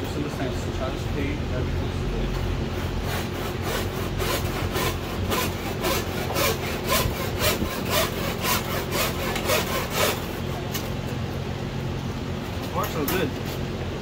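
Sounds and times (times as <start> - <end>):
wire sawing with scraping rhythm: 2.2 - 11.2, 12.7 - 13.6.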